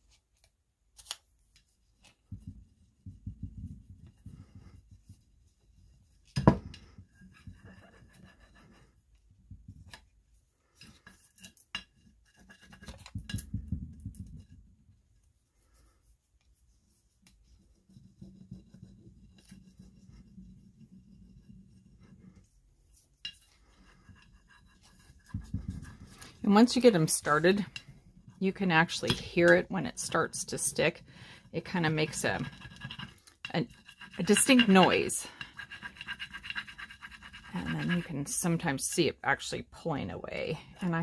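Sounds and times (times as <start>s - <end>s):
scratchy rubbing on glass: 2.6s - 6.2s, 6.8s - 9.7s, 15.5s - 29.0s, 29.6s - 38.7s.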